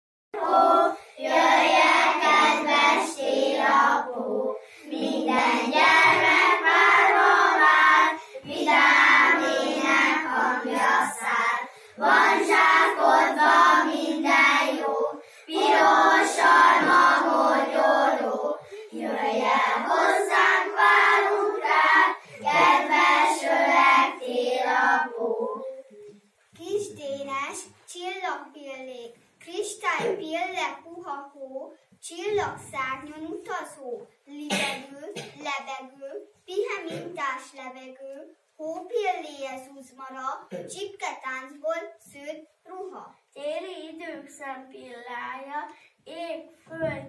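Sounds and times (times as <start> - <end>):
young children singing in unison: 0.4 - 26.2.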